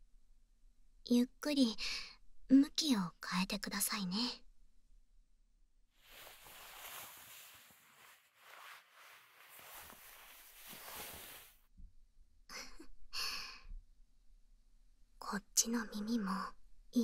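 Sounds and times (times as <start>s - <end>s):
fabric rustling: 6.0s - 11.6s.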